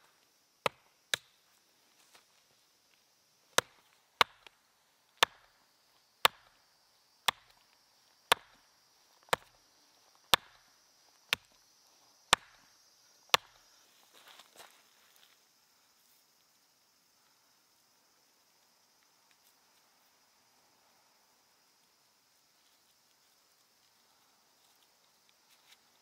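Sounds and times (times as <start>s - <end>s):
hatchet chopping wood: 0.6s - 1.3s, 3.5s - 4.6s, 5.2s - 5.5s, 6.2s - 6.6s, 7.2s - 7.6s, 8.3s - 8.6s, 9.3s - 9.6s, 10.3s - 10.7s, 11.3s - 11.6s, 12.3s - 12.7s, 13.3s - 13.6s.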